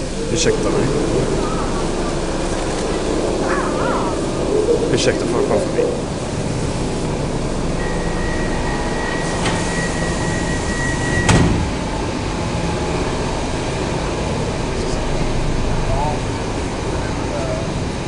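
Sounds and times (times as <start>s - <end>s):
steady high tone: 0.0s - 11.4s
background hum: 0.0s - 18.0s.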